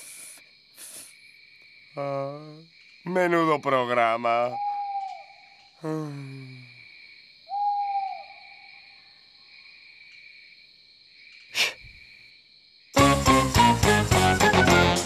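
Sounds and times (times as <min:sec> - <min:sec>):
crickets chirring: 0:00.0 - 0:13.0
owl hooting: 0:04.4 - 0:05.6, 0:07.5 - 0:08.7.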